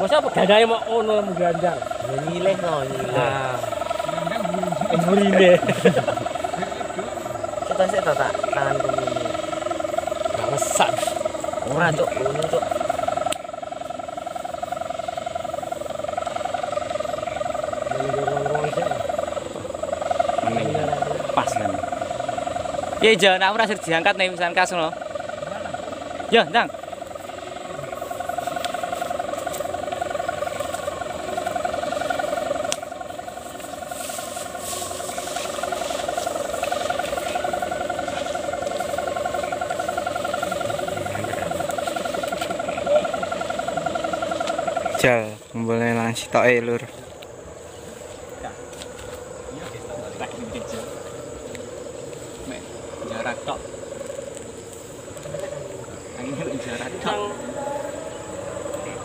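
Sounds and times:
kite hummer droning buzz: 0:00.0 - 0:59.0
fainter higher tone: 0:56.8 - 0:59.0.

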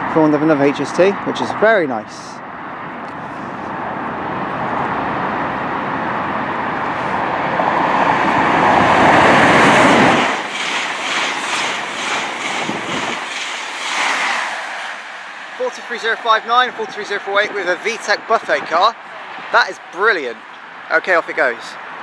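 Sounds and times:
train rushing past: 0:03.8 - 0:20.4
train wheel clicks: 0:09.6 - 0:14.9.

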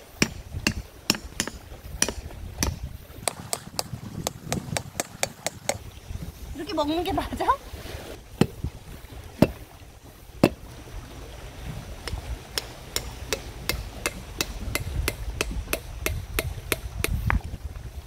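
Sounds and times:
knife striking coconut shell: 0:12.6 - 0:17.2.

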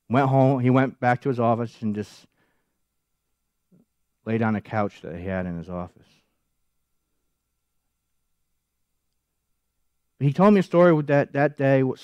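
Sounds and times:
man speaking: 0:00.1 - 0:02.3, 0:04.2 - 0:06.2, 0:10.2 - 0:12.0.

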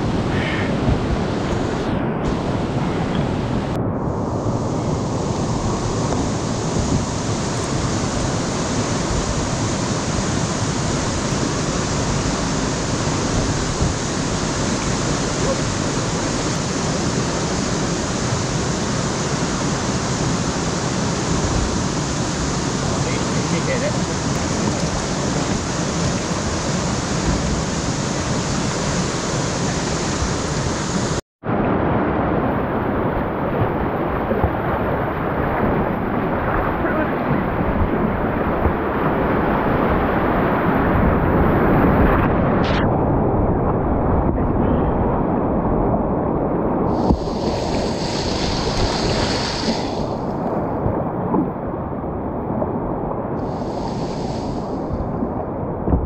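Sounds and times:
whitewater rushing in river rapid: 0:04.4 - 0:42.3, 0:46.9 - 0:51.8, 0:53.4 - 0:55.8.

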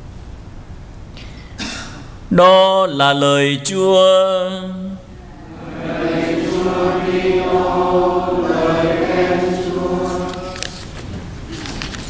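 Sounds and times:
voices chanting in unison: 0:05.2 - 0:11.0.

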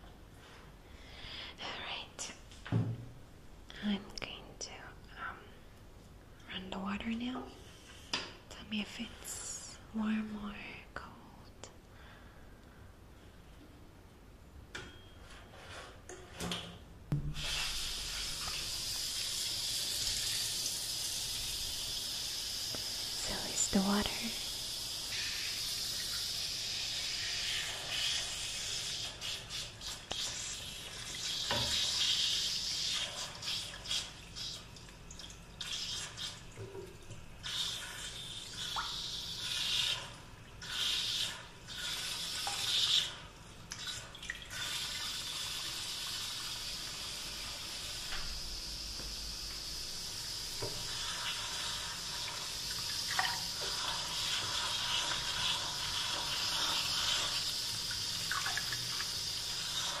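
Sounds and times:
tap water running and splashing: 0:17.1 - 1:00.0.

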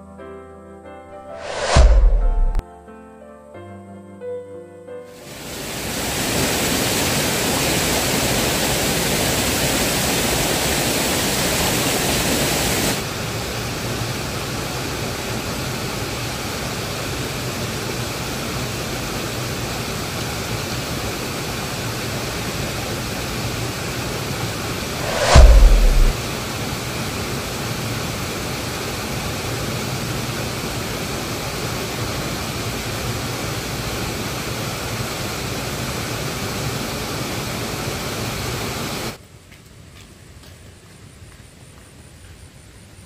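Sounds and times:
loud thump: 0:01.4 - 0:02.6, 0:24.8 - 0:26.2
waterfall rushing: 0:05.2 - 0:13.2.

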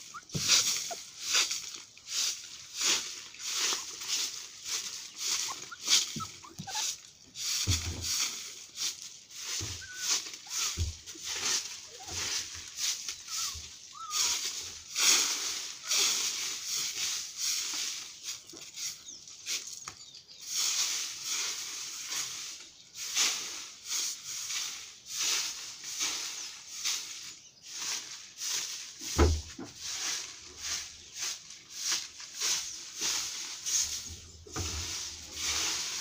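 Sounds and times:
broom sweeping dry leaves: 0:00.0 - 0:36.0
dull thump: 0:29.1 - 0:29.8.

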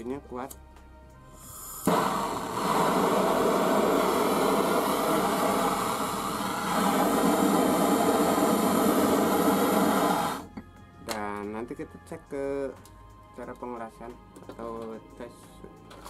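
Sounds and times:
gas torch hissing: 0:01.3 - 0:10.6
torch ignition click: 0:01.6 - 0:10.5.

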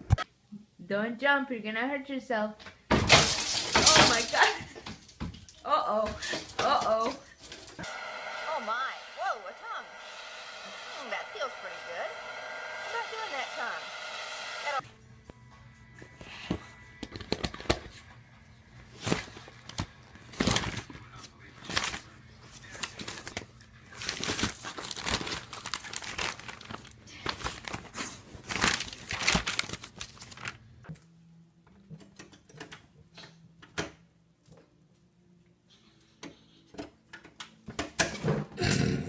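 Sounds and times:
magazine pages crinkling and tearing: 0:18.8 - 0:30.8.

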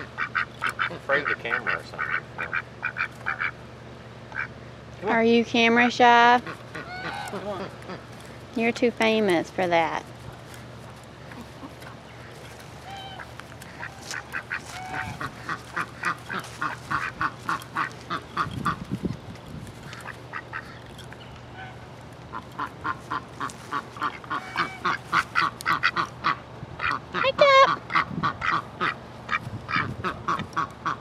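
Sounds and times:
duck quacking: 0:00.0 - 0:03.6, 0:04.3 - 0:04.6, 0:05.8 - 0:08.1, 0:11.3 - 0:18.8, 0:19.8 - 0:20.8, 0:21.5 - 0:31.0.

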